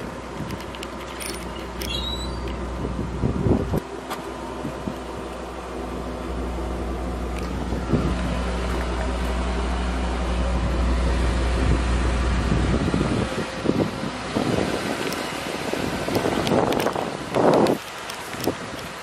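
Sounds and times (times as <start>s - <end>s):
wind buffeting microphone: 2.4s - 3.9s, 7.4s - 9.0s, 11.6s - 19.0s.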